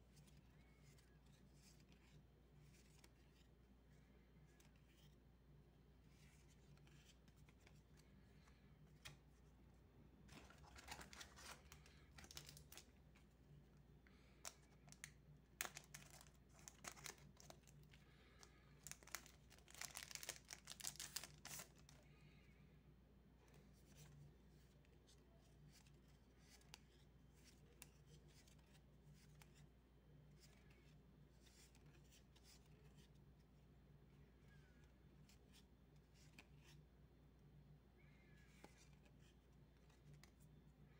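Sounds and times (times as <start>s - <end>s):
cards rustling: 0.1s - 5.2s, 5.9s - 9.6s, 10.2s - 22.4s
foil wrapper crinkling and tearing: 18.8s - 21.7s.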